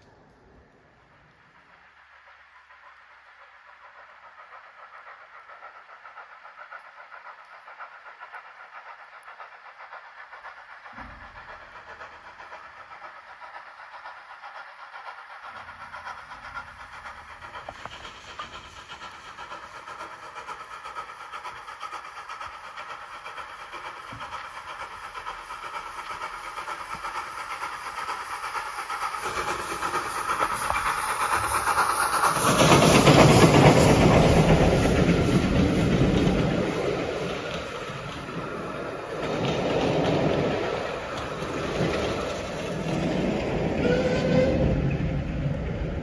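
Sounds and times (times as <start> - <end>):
steam locomotive approaching: 0.0 - 46.0.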